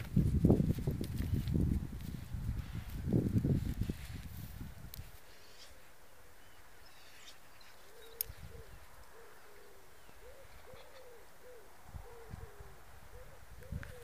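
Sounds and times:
bird hooting or cooing: 0:07.2 - 0:14.0.

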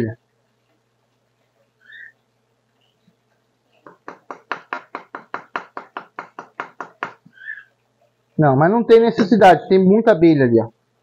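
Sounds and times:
fast tapping on wooden box: 0:03.8 - 0:07.3.

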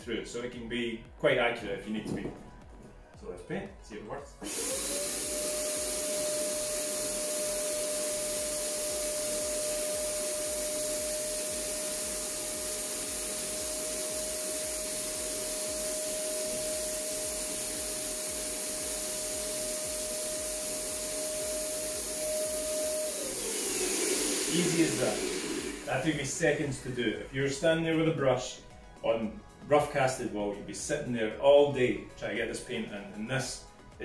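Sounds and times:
paint sprayer turbine whine: 0:04.4 - 0:28.8
spray hiss: 0:04.5 - 0:27.0.

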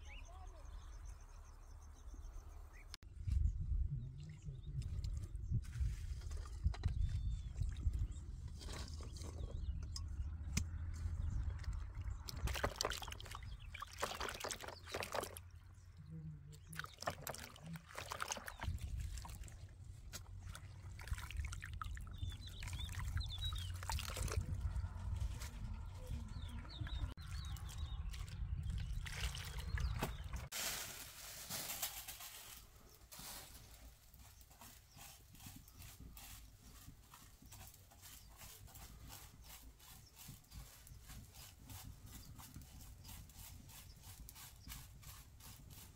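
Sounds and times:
wind rumbling on microphone: 0:02.1 - 0:13.8, 0:18.4 - 0:30.5
water trickling over leaves: 0:11.5 - 0:15.6, 0:16.6 - 0:41.8
water pouring from jug: 0:11.6 - 0:15.4, 0:16.7 - 0:19.6, 0:20.5 - 0:24.4.

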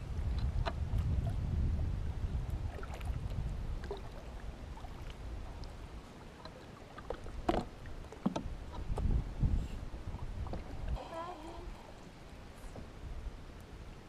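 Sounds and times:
paddle splashes and drips: 0:00.2 - 0:09.1, 0:10.0 - 0:13.8
paddle knocking on kayak: 0:07.0 - 0:09.1.

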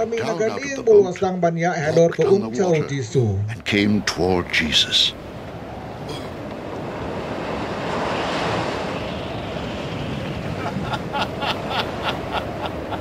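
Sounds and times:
stormy wind and waves: 0:03.6 - 0:13.0.

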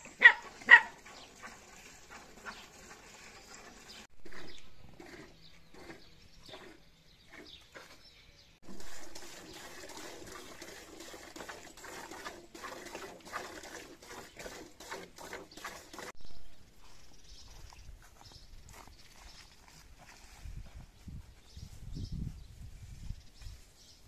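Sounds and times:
milk squirting into metal pail: 0:08.6 - 0:16.2.

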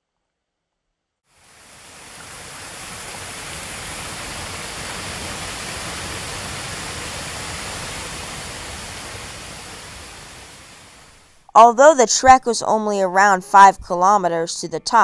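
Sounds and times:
stream rushing over rocks: 0:01.4 - 0:11.4.

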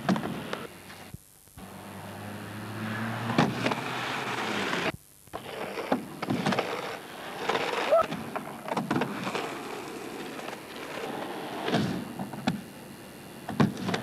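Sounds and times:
skateboard wheels rolling on concrete: 0:00.0 - 0:12.7, 0:13.4 - 0:14.0.

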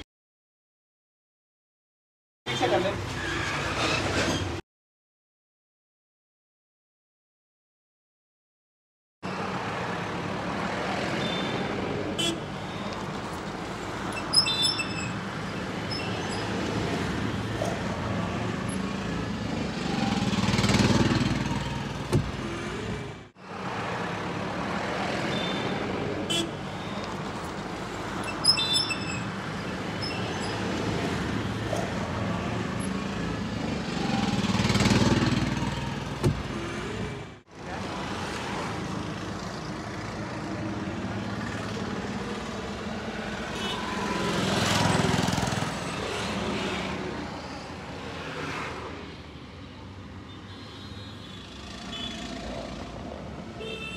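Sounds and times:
road traffic rumble: 0:02.5 - 0:04.6, 0:09.2 - 0:53.9
short high beep: 0:28.3 - 0:29.3.

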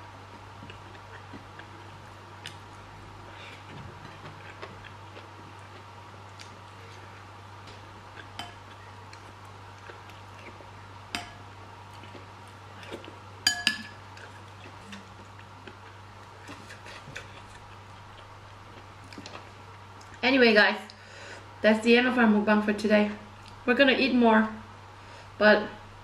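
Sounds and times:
steady low hum: 0:00.0 - 0:26.0
metal spoon clinking against dishes: 0:13.4 - 0:14.0.

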